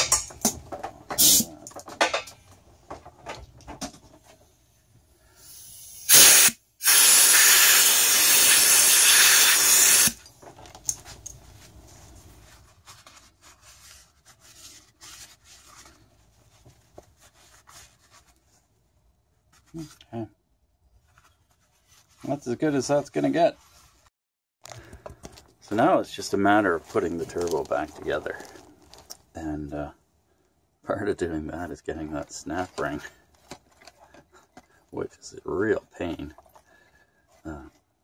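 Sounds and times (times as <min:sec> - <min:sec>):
compressed air blasts: 0:01.2 - 0:01.5, 0:05.4 - 0:10.2.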